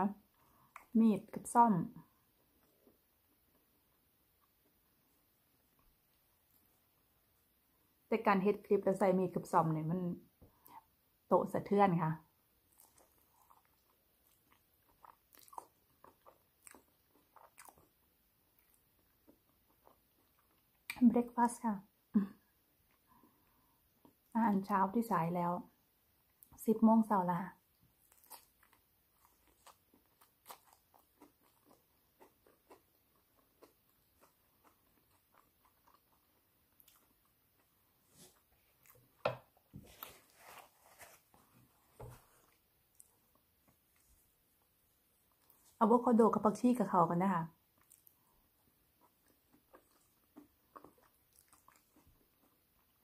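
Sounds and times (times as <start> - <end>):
person chewing crispbread: 12.6 - 21.0, 27.7 - 45.8, 47.6 - 53.0.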